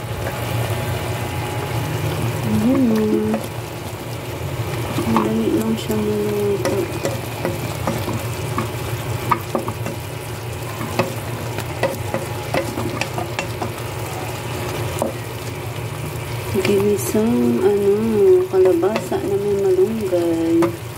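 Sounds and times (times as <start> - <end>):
cooking noise: 0.0 - 20.9
spatula knocking against pot: 6.6 - 8.7, 9.3 - 10.0, 10.8 - 13.8
spatula stirring in pot: 6.6 - 15.6, 16.3 - 20.9.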